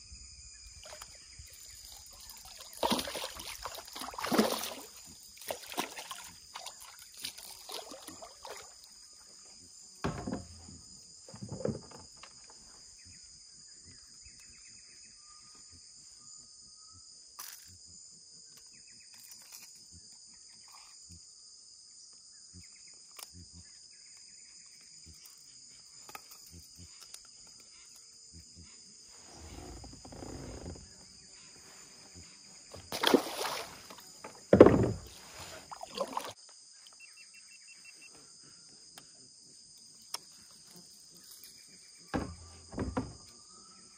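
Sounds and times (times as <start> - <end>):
high-pitched insect chorus: 0.0 - 43.9
kayak and paddle knocks: 10.0 - 10.7, 34.1 - 35.2, 42.1 - 43.3.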